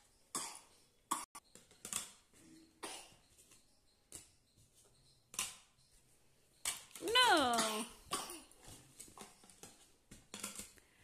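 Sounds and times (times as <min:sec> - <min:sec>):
plastic rings clacking: 0:08.6 - 0:10.8.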